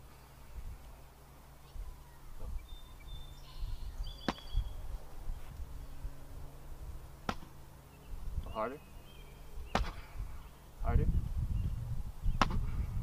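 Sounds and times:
wind rumble on microphone: 0:01.8 - 0:07.1, 0:08.1 - 0:08.6, 0:09.4 - 0:13.0
fist smacking a chest: 0:09.7 - 0:10.0, 0:12.4 - 0:12.7.

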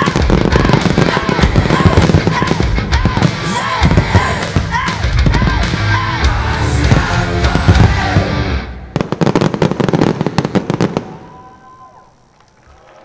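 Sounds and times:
music soundtrack: 0:00.0 - 0:09.0
sharp firework reports: 0:00.0 - 0:12.3
firework bursts: 0:00.0 - 0:13.0.

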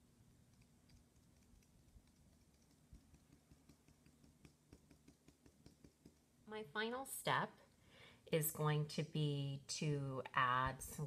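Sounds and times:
cotton swab dabbing on paper: 0:00.0 - 0:06.4
faint low hum: 0:00.0 - 0:11.0.

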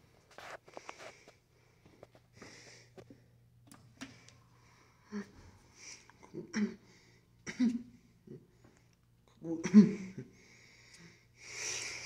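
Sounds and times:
person making throat noises: 0:06.2 - 0:06.9, 0:09.3 - 0:10.3.

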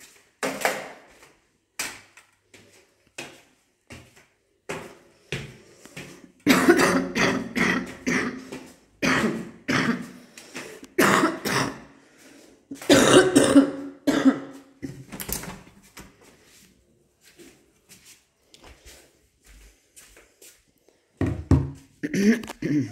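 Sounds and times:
person coughing: 0:06.4 - 0:10.2, 0:11.0 - 0:11.9, 0:12.7 - 0:15.1, 0:22.0 - 0:22.9
throat-clearing: 0:22.0 - 0:22.9.

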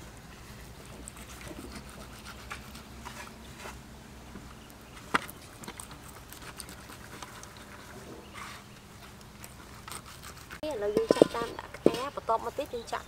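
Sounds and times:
knife scratching pork skin: 0:00.8 - 0:03.8, 0:05.6 - 0:08.7, 0:09.3 - 0:11.6.

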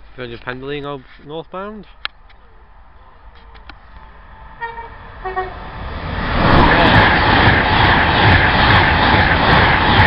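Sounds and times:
train passing at speed: 0:02.4 - 0:10.0
two-tone train horn: 0:04.6 - 0:05.6.

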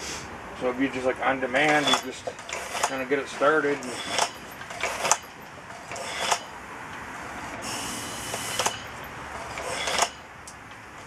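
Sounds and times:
compressed air hissing: 0:00.0 - 0:00.4, 0:07.2 - 0:10.2
generator running: 0:00.0 - 0:11.0
sharp clicks: 0:04.0 - 0:07.0.

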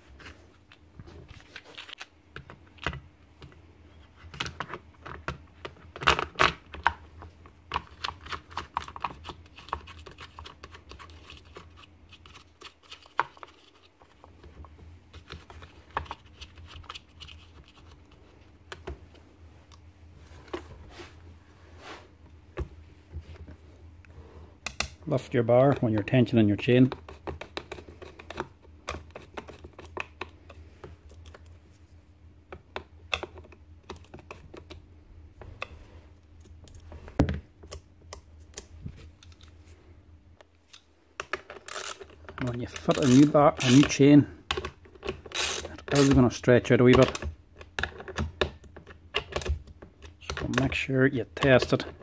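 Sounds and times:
clicks taps and scrapes of handling: 0:26.8 - 0:31.8.

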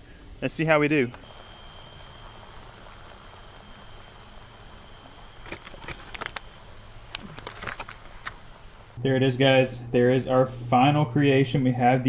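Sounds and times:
aluminum foil crinkling: 0:01.3 - 0:09.0.

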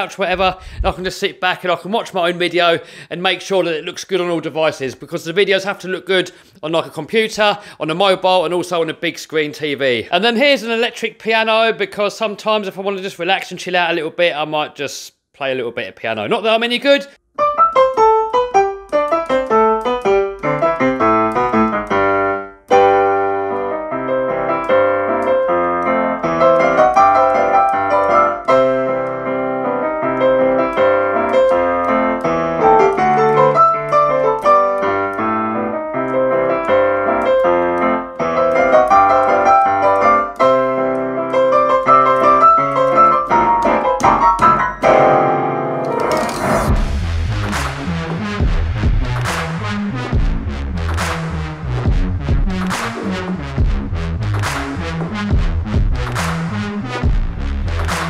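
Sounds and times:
electric piano playing: 0:17.3 - 0:46.8.

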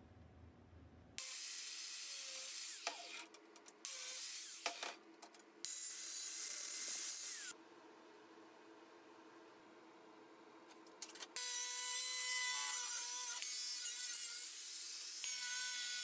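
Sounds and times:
faint steady hum: 0:05.0 - 0:12.7.

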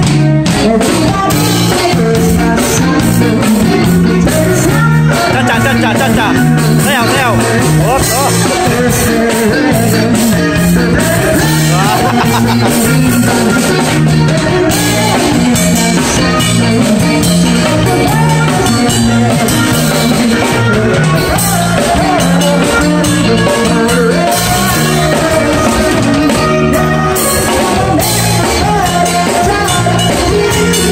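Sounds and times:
drum kit: 0:00.0 - 0:30.9
electric bass guitar: 0:00.0 - 0:30.9
keyboard: 0:00.0 - 0:30.9
person singing: 0:00.0 - 0:30.9.

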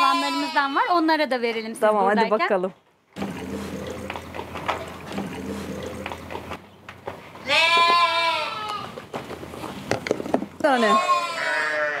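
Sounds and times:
sheep bleating: 0:00.0 - 0:01.0, 0:07.4 - 0:09.0, 0:10.6 - 0:12.0.

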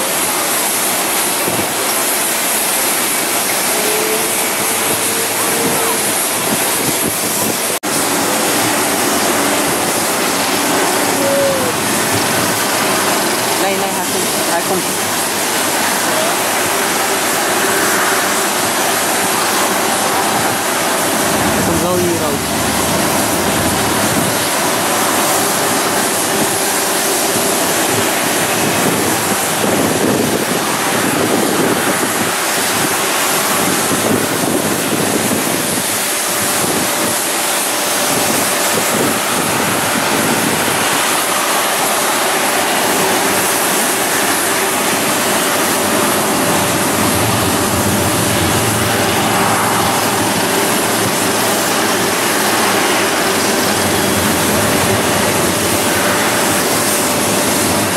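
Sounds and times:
jet engines running: 0:00.0 - 0:57.9.

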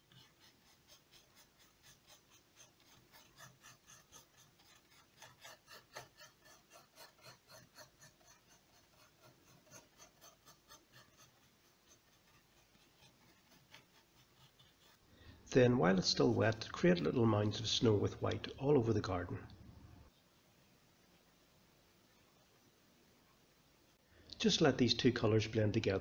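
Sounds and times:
paintbrush strokes on board: 0:00.0 - 0:19.4.

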